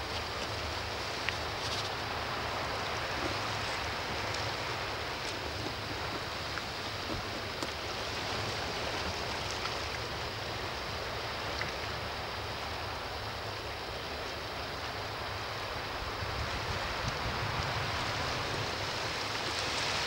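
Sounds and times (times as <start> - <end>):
faint ticks: 0.0 - 2.0, 11.4 - 12.0
sea washing against rocks: 16.2 - 20.0.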